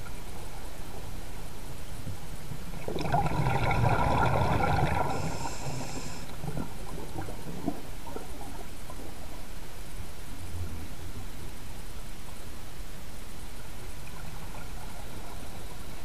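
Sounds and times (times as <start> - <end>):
low steady water noise: 0.0 - 16.0
diver exhaling bubbles underwater: 2.8 - 8.3.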